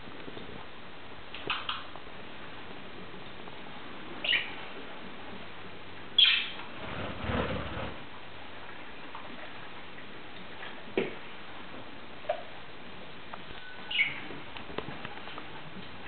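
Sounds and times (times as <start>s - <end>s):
budgerigars chirping: 4.2s - 4.6s, 6.2s - 6.6s, 13.9s - 14.2s.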